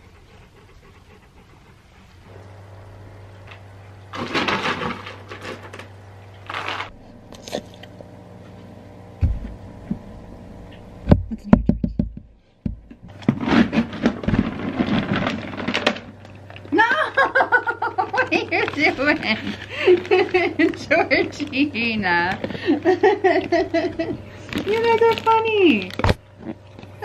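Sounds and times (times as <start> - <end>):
low steady hum: 0.0 - 27.0
plastic rustling and scraping: 3.5 - 7.6, 13.0 - 27.0.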